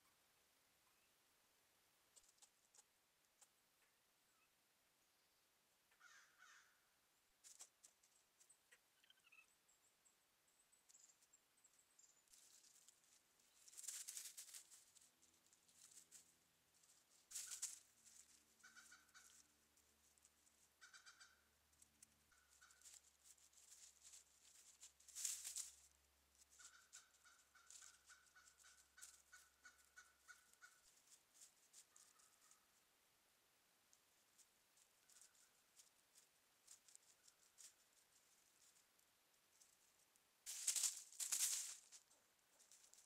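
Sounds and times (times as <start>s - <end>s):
squirrels rustling in dry leaves: 7.4s - 8.5s, 10.8s - 32.9s, 33.9s - 43.0s
rapid short animal calls: 9.0s - 9.5s, 17.3s - 19.5s, 20.8s - 21.5s, 26.5s - 31.1s.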